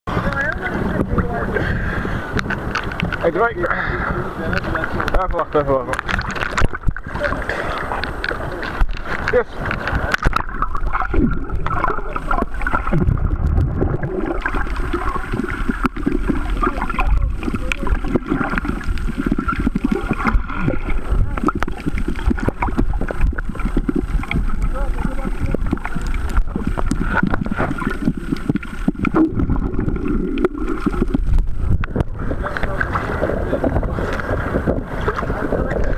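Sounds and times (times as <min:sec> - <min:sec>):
underwater sloshing and gurgling: 0:00.1 - 0:35.9
water splash: 0:04.7 - 0:35.9.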